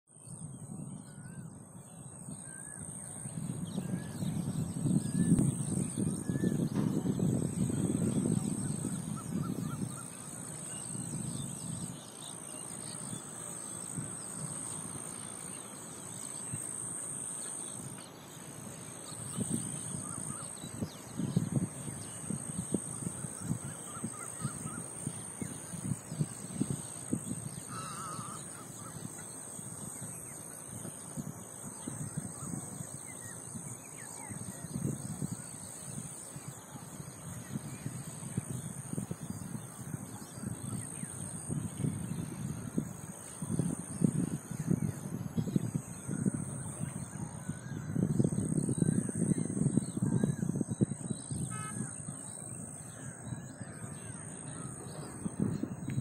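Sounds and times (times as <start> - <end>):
low rumbling in gusts: 0.3 - 30.2, 30.8 - 56.0
wavering bird call: 19.1 - 21.3, 22.7 - 25.8, 27.2 - 29.2, 46.1 - 55.4
short bird calls: 27.2 - 29.3, 51.3 - 56.0.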